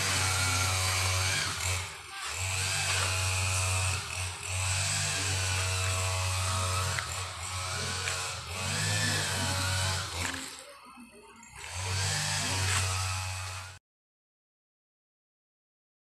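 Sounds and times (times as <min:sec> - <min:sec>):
power tool running: 0:00.0 - 0:10.7, 0:11.4 - 0:13.8.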